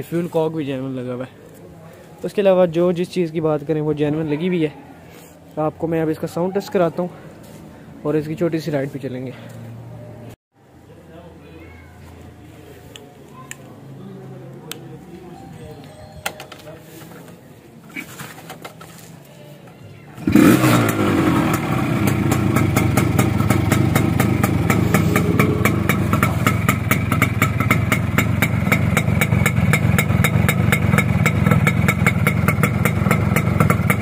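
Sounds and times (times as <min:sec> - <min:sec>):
two-stroke engine starting and idling: 0:20.2 - 0:34.0.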